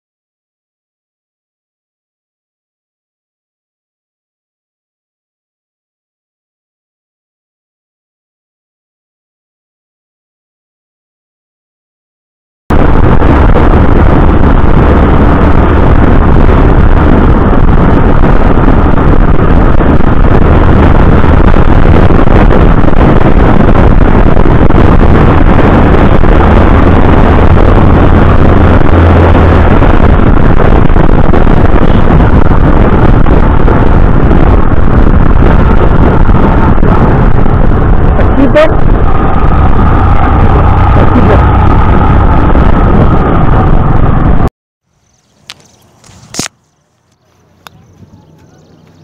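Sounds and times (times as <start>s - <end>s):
road noise: 12.7s - 49.0s
wind buffeting microphone: 12.7s - 49.0s
motorcycle engine: 12.8s - 49.0s.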